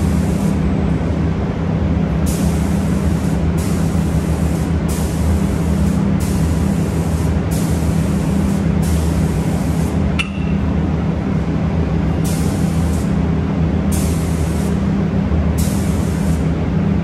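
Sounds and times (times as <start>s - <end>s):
low machine hum: 0.0s - 17.0s
spray gun hissing: 2.3s - 10.0s, 12.2s - 13.1s, 13.9s - 14.8s, 15.6s - 16.4s
sharp click with ring: 10.2s - 10.6s.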